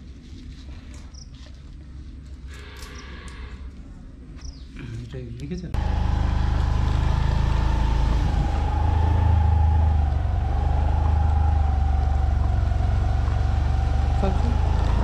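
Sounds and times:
vehicle engine droning: 5.8 - 15.0.

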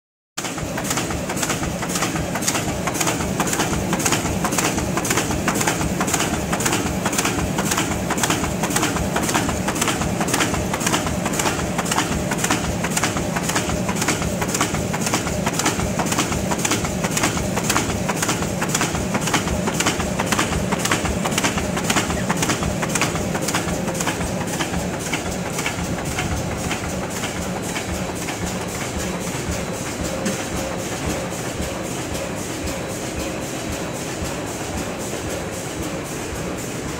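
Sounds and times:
die-cutting machine clattering: 0.4 - 36.9
rapid repeating clicks: 0.5 - 29.5.

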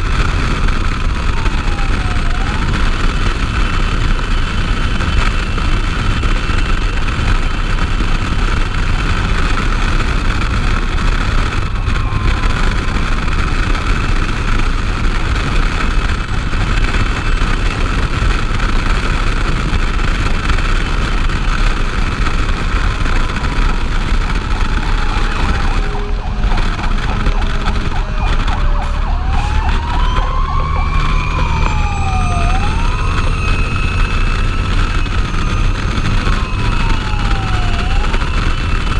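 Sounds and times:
fire engine running: 0.0 - 38.9
wind and road noise: 0.0 - 38.9
siren winding up and down: 0.9 - 5.5, 11.1 - 14.8, 22.4 - 38.9.

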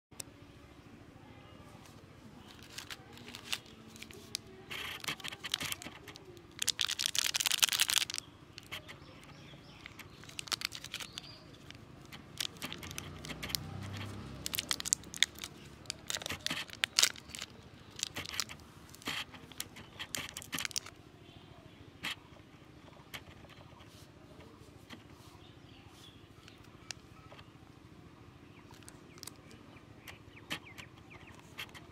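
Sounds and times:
plastic candy wrapper crinkling: 2.4 - 21.0, 28.7 - 29.5.

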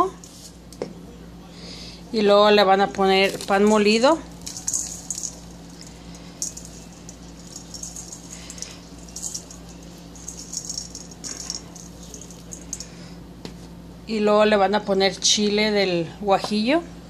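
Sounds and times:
breadcrumbs poured into bowl: 3.2 - 12.9.

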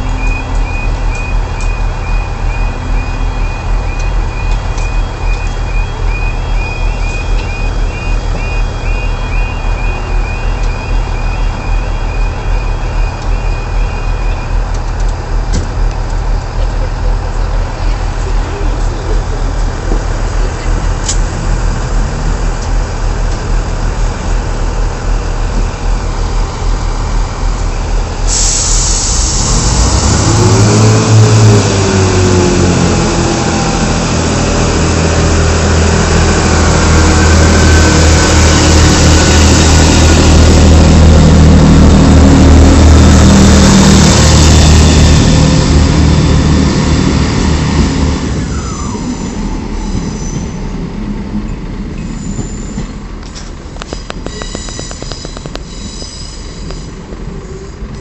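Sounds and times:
diesel train engine: 0.0 - 58.0
hiss: 28.2 - 30.3
falling squeal: 48.5 - 50.7, 52.0 - 53.0.

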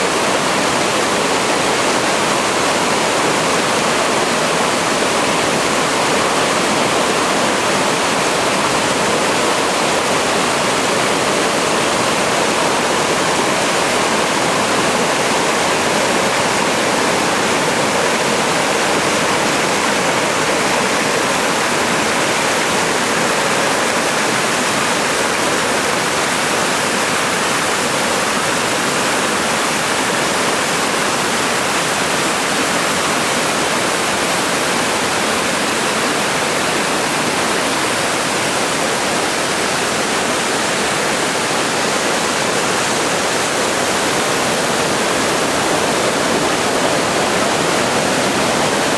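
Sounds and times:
stream rushing over rocks: 0.0 - 48.9.

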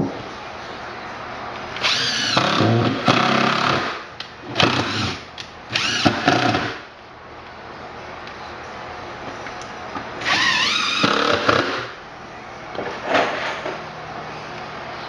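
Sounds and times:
cordless drill driving screws: 1.8 - 3.9, 4.6 - 6.8, 10.2 - 11.9.

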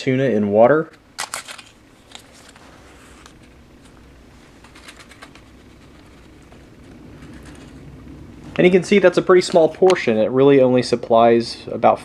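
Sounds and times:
low hum: 1.0 - 12.0.

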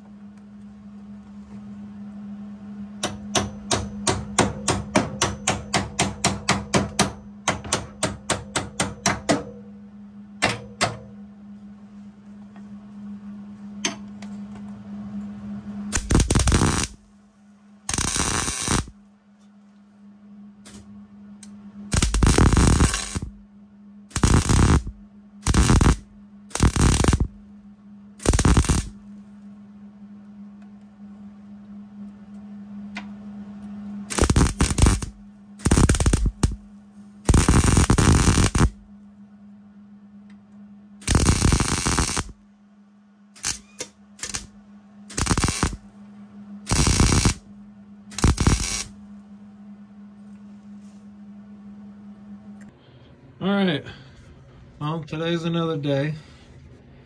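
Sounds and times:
hammer striking steel: 3.0 - 9.6
welder tack-welding steel: 15.9 - 17.0, 17.9 - 18.9, 21.9 - 23.4, 24.1 - 27.4, 28.2 - 29.0, 34.1 - 36.7, 37.3 - 38.8, 41.0 - 42.4, 43.4 - 44.5, 45.1 - 45.8, 46.7 - 47.4, 48.1 - 49.0.

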